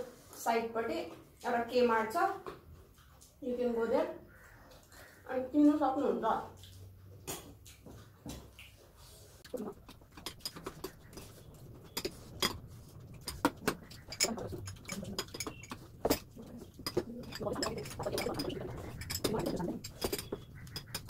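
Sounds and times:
chewing and eating: 2.4s - 5.3s, 6.3s - 21.0s
spoons clinking on ceramic bowls: 13.2s - 21.0s.

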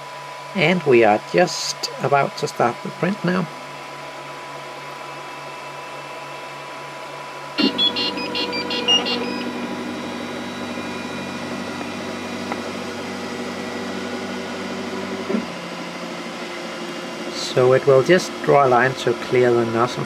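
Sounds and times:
stepper motors humming: 0.7s - 20.0s
printer buzzer beeping tune: 7.6s - 11.2s.

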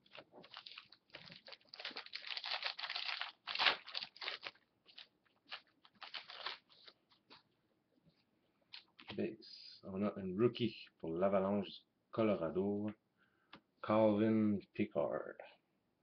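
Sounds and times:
foil wrapper crinkling: 0.0s - 7.0s.

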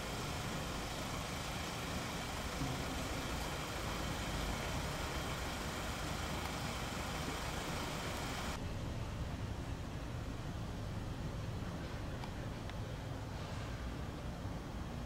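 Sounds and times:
machinery humming: 0.0s - 8.6s
constant hiss: 0.0s - 15.0s.

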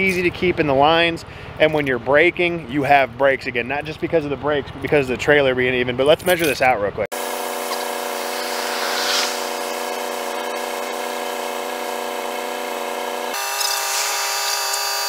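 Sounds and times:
air compressor buzzing whine: 7.1s - 15.0s.

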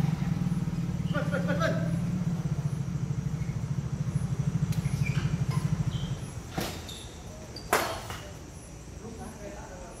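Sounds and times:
vehicle engine running: 0.0s - 7.4s.

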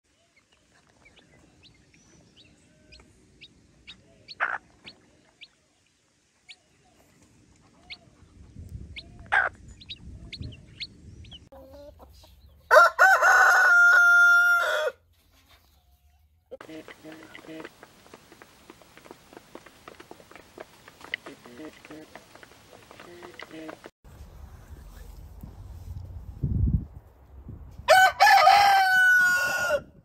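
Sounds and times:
chicks peeping: 0.4s - 5.5s, 6.5s - 12.7s
rooster crowing: 12.7s - 15.0s, 27.9s - 30.0s.

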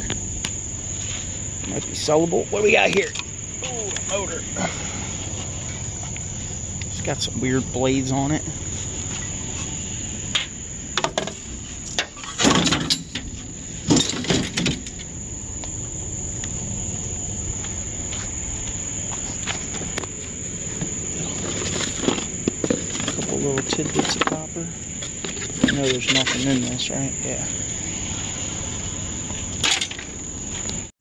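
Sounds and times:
rustle: 0.0s - 2.0s, 8.5s - 30.9s
insects droning: 0.0s - 31.0s
clattering and scraping: 10.4s - 15.1s, 19.2s - 26.8s, 29.3s - 30.1s.

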